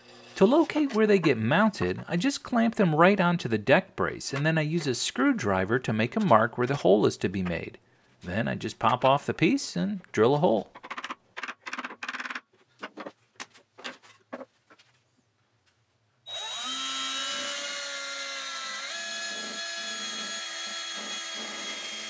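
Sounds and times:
knocks and scrapes: 10.3 - 15.1
cordless drill boring wood: 16.3 - 22.0.

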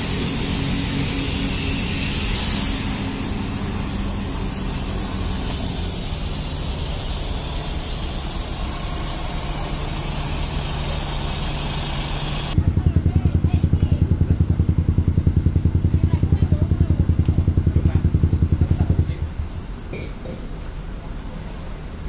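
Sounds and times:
hiss: 0.0 - 12.6
bus diesel engine running: 0.0 - 22.0.

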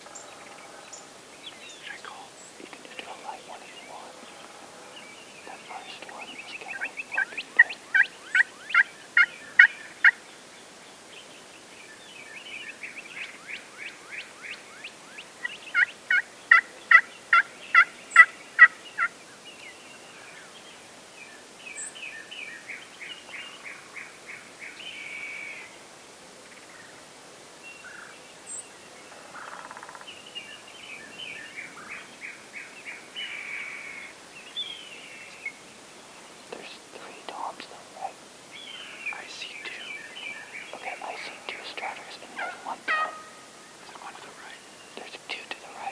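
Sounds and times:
wild turkeys yelping: 42.4 - 43.4.

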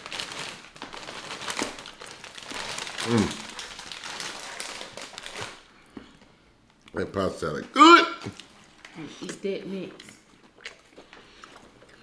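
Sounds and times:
foil chip bag crinkling: 0.0 - 5.7.

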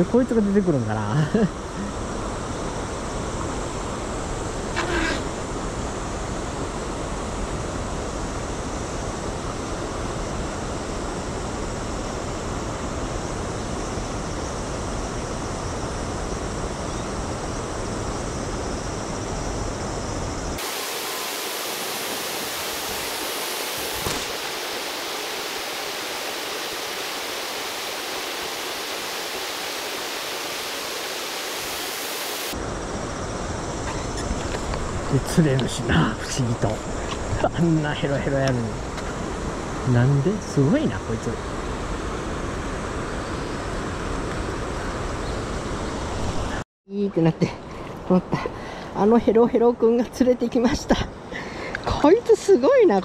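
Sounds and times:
river water rushing: 20.6 - 32.6.

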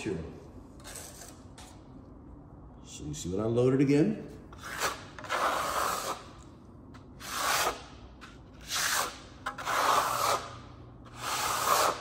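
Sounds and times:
trowel scraping plaster: 4.5 - 6.5, 7.2 - 12.0.

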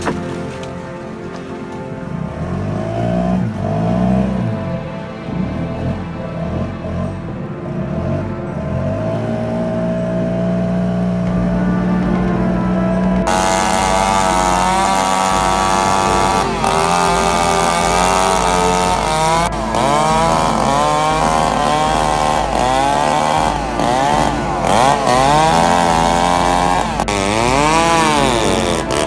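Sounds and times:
chainsaw cutting tree trunk: 13.3 - 29.0.

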